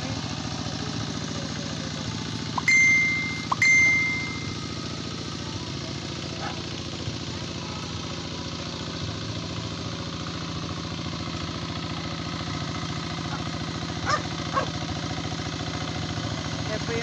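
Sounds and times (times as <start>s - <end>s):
hand tractor engine chugging: 0.0s - 17.0s.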